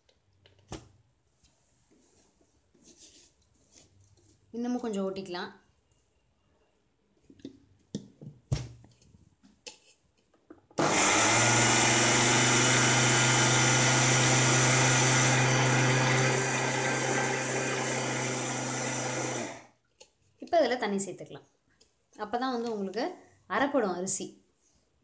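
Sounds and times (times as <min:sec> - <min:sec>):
mixer grinder motor running: 0:10.8 - 0:19.7.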